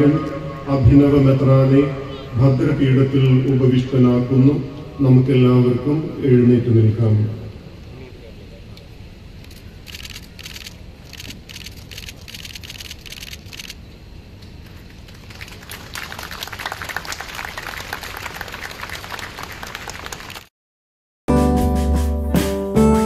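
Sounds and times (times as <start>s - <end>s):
crowd applauding: 15.1s - 20.5s.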